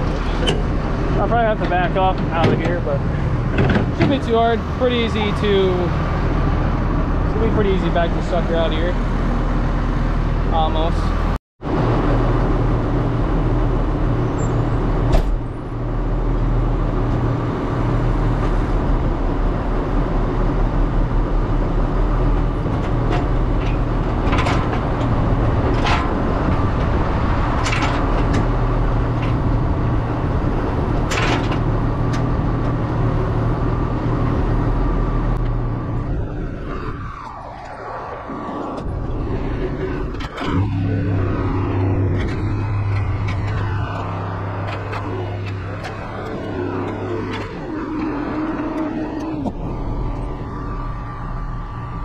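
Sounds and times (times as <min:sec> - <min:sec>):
machinery knocks and clanks: 0:00.0 - 0:05.4, 0:22.4 - 0:29.6
tractor diesel engine running: 0:00.0 - 0:17.0, 0:38.8 - 0:52.0.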